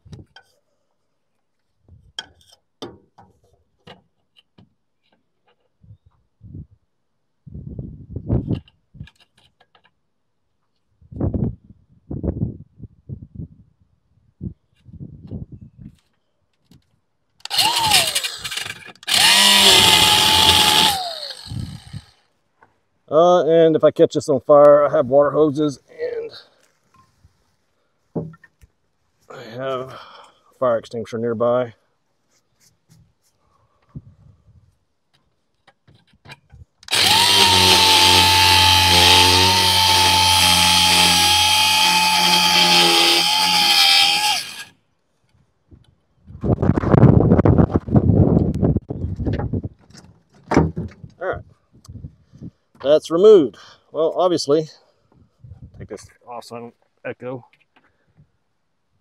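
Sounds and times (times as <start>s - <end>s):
angle grinder cutting metal: 17.4s - 22.1s, 36.9s - 44.7s.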